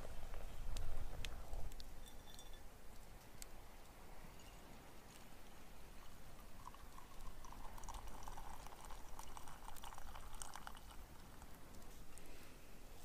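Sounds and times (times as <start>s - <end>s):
coffee pouring into mug: 5.8s - 11.7s.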